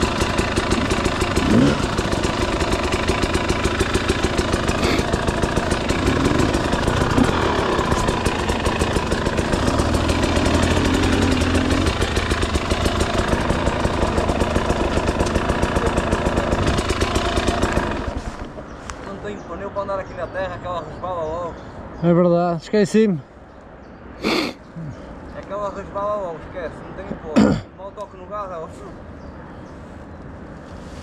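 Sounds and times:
two-stroke dirt bike engine idling: 0:00.0 - 0:18.8.

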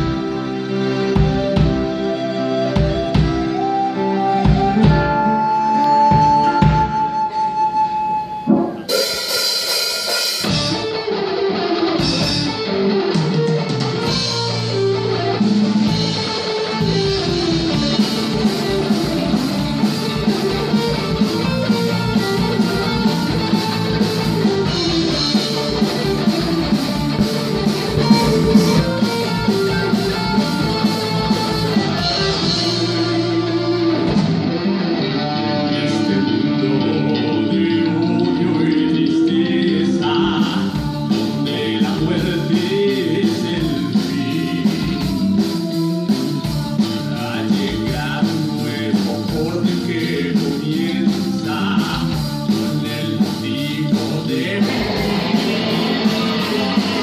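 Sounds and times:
rock band playing: 0:00.0 - 0:57.0
steady drum beat: 0:08.4 - 0:11.2, 0:12.0 - 0:34.8, 0:40.1 - 0:57.0
cymbal crash: 0:08.5 - 0:10.8.

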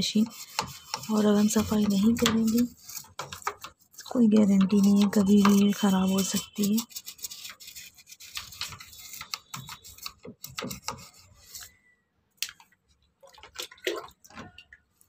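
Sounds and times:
toothbrush scrubbing plastic: 0:00.0 - 0:11.8.

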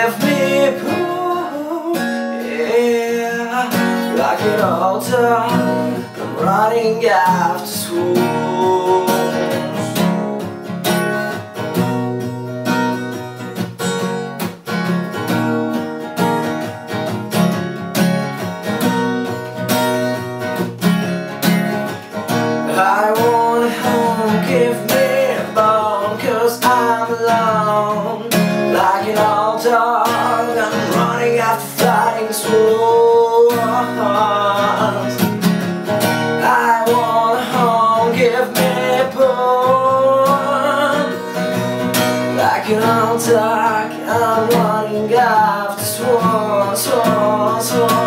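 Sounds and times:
man singing: 0:00.0 - 0:10.6, 0:22.6 - 0:48.0
acoustic guitar strumming: 0:00.0 - 0:48.0.

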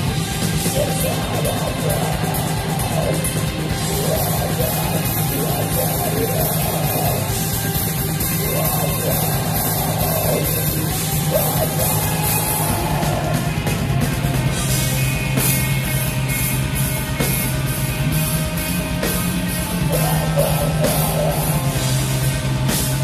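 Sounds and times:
distorted guitars: 0:00.0 - 0:23.0
drums: 0:00.0 - 0:23.0
harsh yelled vocal: 0:00.6 - 0:14.3, 0:19.8 - 0:21.9.

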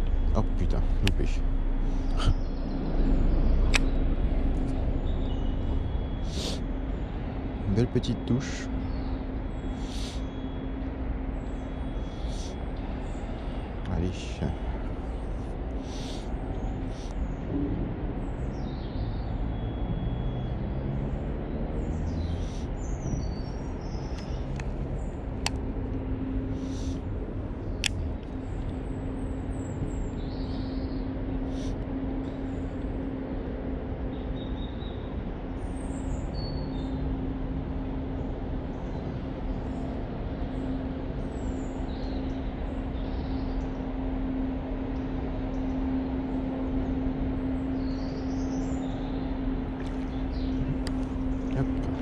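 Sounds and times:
background rumble: 0:00.0 - 0:20.3, 0:35.3 - 0:52.0
low mechanical drone: 0:00.0 - 0:52.0
small birds chirping: 0:00.0 - 0:52.0.

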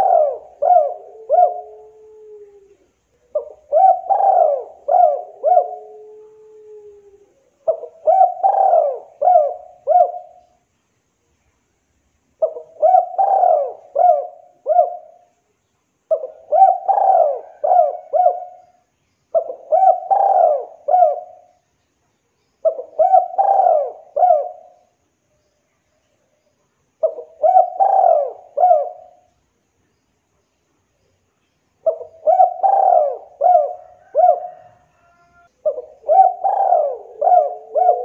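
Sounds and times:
dove cooing: 0:00.0 - 0:10.6, 0:12.4 - 0:15.3, 0:16.1 - 0:21.6, 0:22.6 - 0:24.9, 0:27.0 - 0:29.3, 0:31.8 - 0:38.0.

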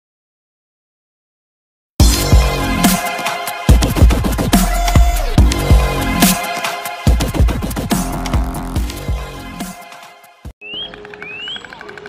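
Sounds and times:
electronic music with heavy bass: 0:02.0 - 0:09.9.

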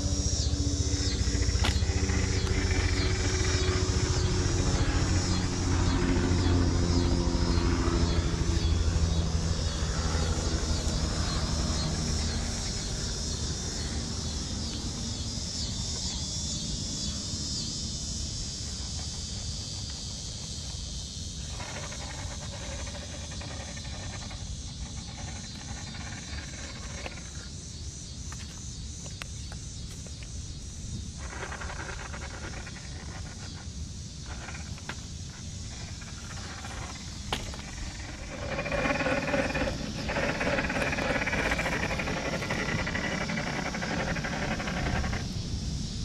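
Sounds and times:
toy truck electric motor whining: 0:00.0 - 0:15.8, 0:21.3 - 0:27.5, 0:31.1 - 0:45.6.

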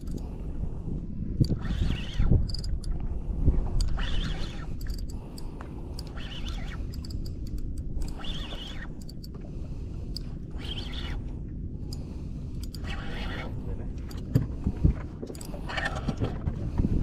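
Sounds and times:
steady low rumble: 0:00.0 - 0:17.0
fishing reel drag buzzing: 0:01.4 - 0:02.9, 0:03.8 - 0:09.3, 0:10.2 - 0:11.3.

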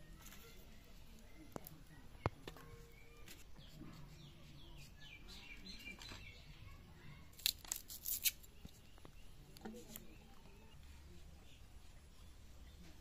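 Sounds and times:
birds chirping faintly: 0:00.0 - 0:13.0
onion being cut: 0:07.3 - 0:08.5.

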